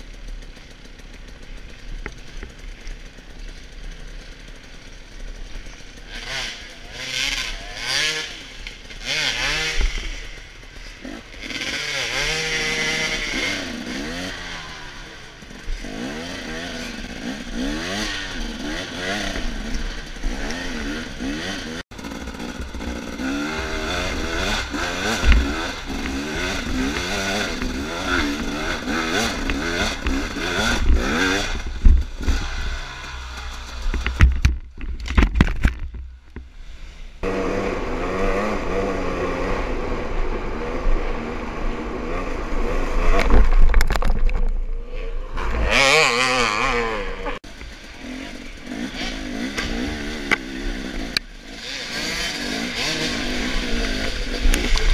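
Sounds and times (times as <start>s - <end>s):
dirt bike engine revving: 0.0s - 54.9s
bike clattering over ground: 29.2s - 36.5s.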